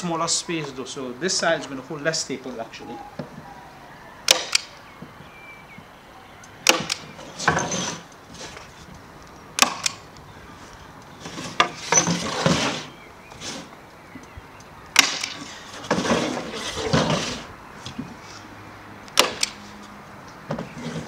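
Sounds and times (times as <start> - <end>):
staple gun snapping: 4.3 - 4.7, 19.1 - 19.6
wooden frame scraping on table: 7.2 - 8.6, 11.2 - 13.7, 15.4 - 17.5.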